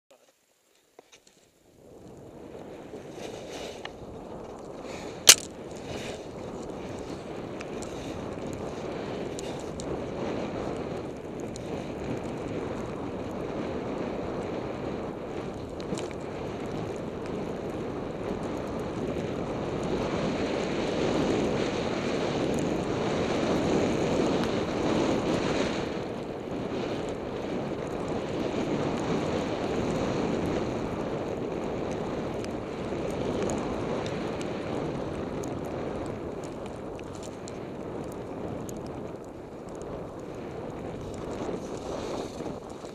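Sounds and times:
wind buffeting microphone: 1.7 - 42.9
skis hissing through powder snow: 2.4 - 10.3, 41.1 - 42.9.

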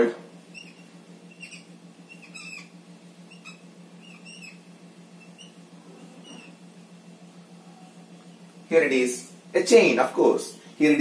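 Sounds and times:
whiteboard marker squeaking: 0.5 - 6.6.

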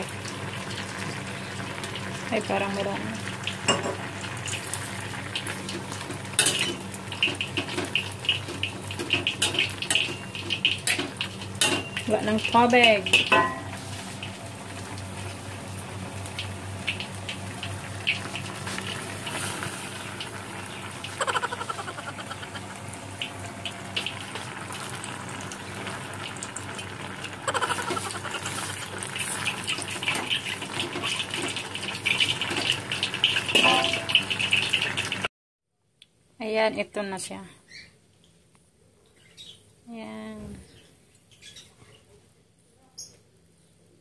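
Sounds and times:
water filling a steel pot: 16.4 - 35.3.

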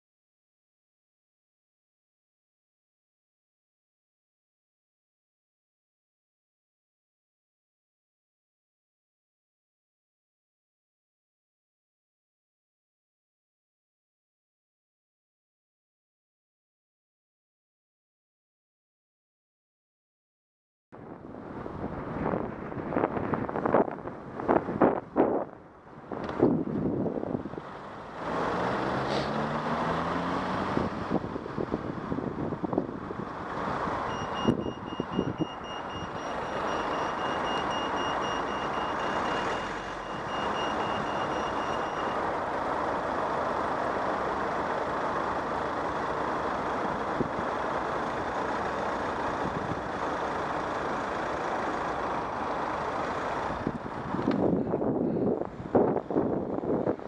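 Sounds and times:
wind on microphone: 21.1 - 27.8, 53.6 - 57.0
vehicle engine pulling away: 26.0 - 57.0
traffic hiss: 27.6 - 31.7
crossing signal beeping: 34.1 - 42.3.

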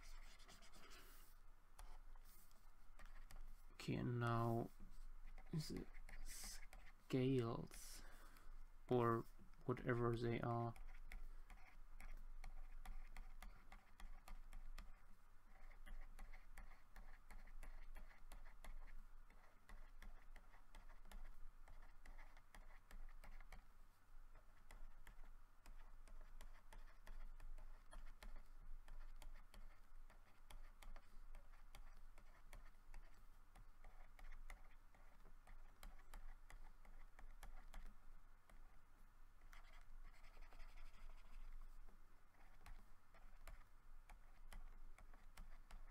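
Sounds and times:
computer mouse clicking and scratching: 0.0 - 23.7, 24.3 - 38.8, 39.4 - 45.9
low electrical hum: 0.0 - 45.9.

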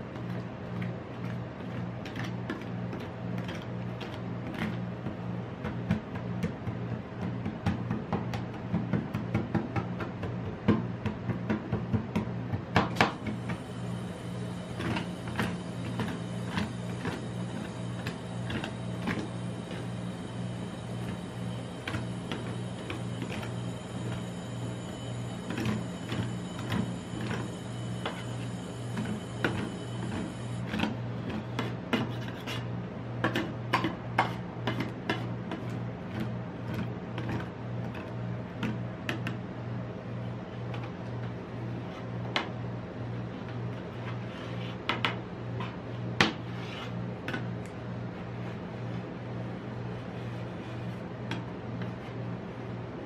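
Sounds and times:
low hum: 13.2 - 30.7.

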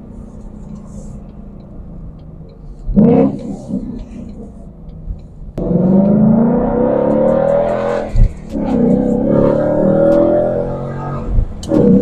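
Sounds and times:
car accelerating: 2.5 - 4.9, 5.6 - 12.0
car engine revving: 2.9 - 4.7, 5.6 - 12.0.

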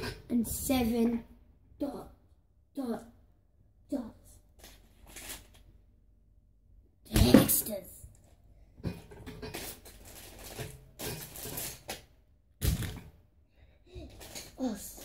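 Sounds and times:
rustling and scraping of objects: 4.3 - 5.9, 7.3 - 13.1, 13.7 - 15.0.

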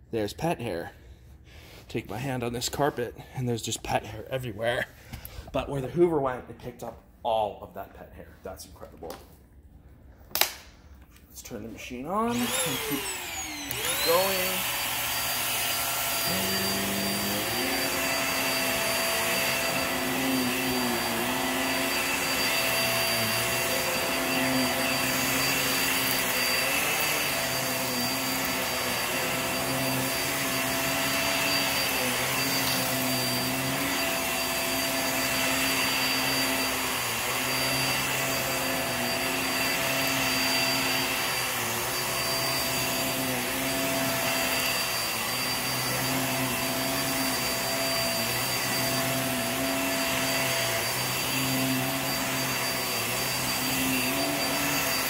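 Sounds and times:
vacuum cleaner running on carpet: 12.1 - 55.0.

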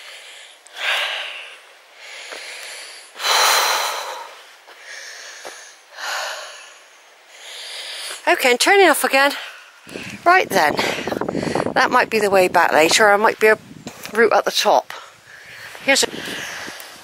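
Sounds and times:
person breathing hard: 0.0 - 8.2, 10.8 - 11.8, 15.0 - 17.0.

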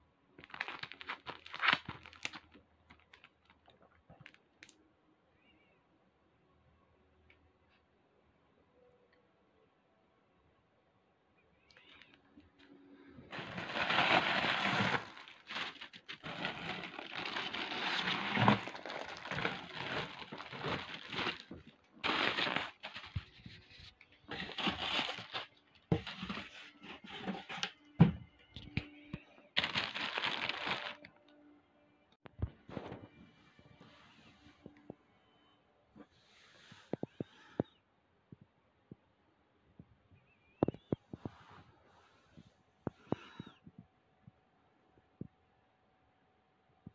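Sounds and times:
plastic and tissue paper crinkling: 0.4 - 4.4, 13.3 - 27.4, 29.6 - 31.1.

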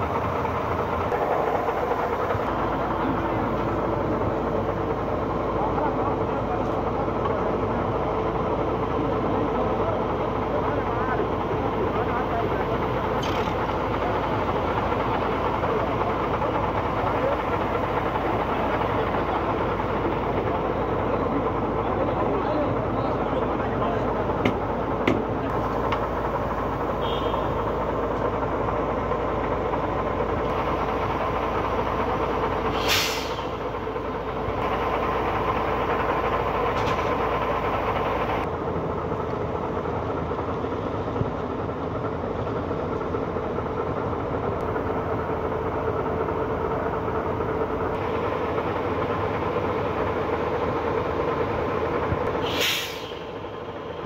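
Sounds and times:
heavy machinery engine drone: 0.0 - 54.0
brief hiss: 32.7 - 33.5, 52.4 - 53.2.

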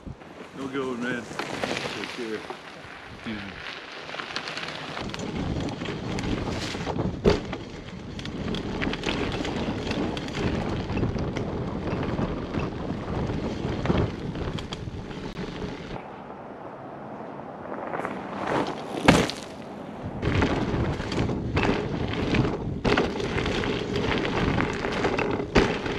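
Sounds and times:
tyres crunching over pine needles: 0.4 - 5.1
bike clattering over bumps: 4.0 - 16.0, 18.5 - 19.6, 20.2 - 25.9
wind buffeting microphone: 5.0 - 19.1, 19.7 - 25.9.

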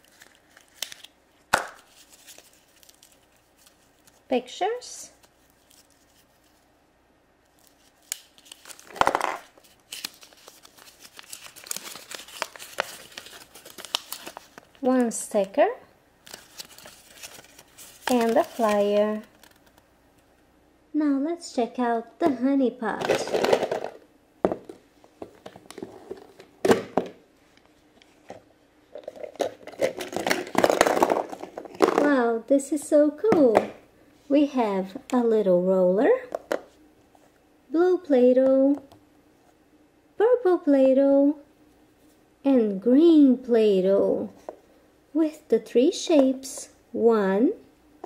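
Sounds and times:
paper crinkling: 0.0 - 1.1, 1.8 - 4.3, 5.2 - 6.7, 7.5 - 14.9, 16.2 - 19.8.

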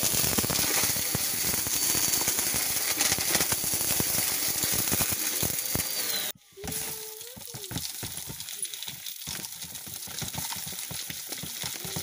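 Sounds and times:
glitter rattling through vacuum: 0.0 - 8.7.

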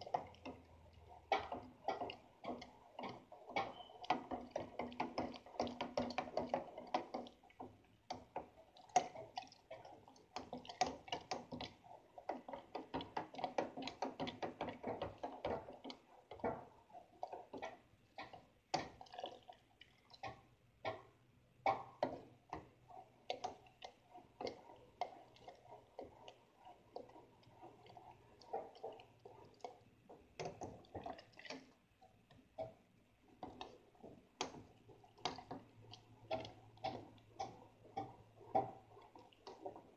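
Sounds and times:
liquid swishing: 0.0 - 39.9.

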